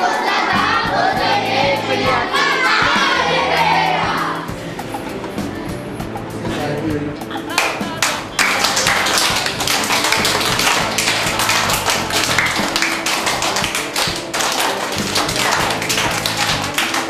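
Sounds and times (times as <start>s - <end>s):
fast tapping percussion: 8.0s - 17.0s.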